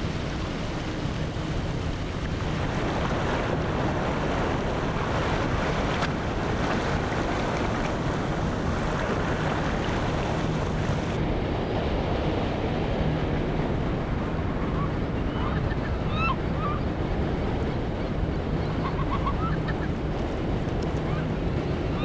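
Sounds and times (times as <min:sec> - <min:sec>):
surf breaking on beach: 0:00.0 - 0:22.0
wind on microphone: 0:00.0 - 0:22.0
birds calling: 0:14.6 - 0:17.0, 0:17.9 - 0:20.1.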